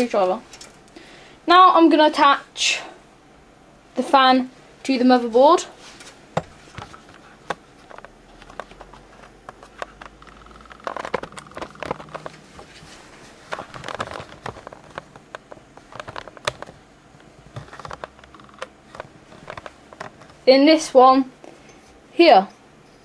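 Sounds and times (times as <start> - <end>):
clicks and taps of handling cable: 6.4 - 12.7, 13.5 - 20.4.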